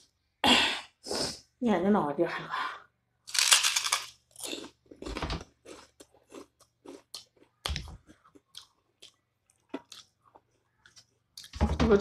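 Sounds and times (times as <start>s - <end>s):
person chewing crunchy food: 3.3s - 11.6s.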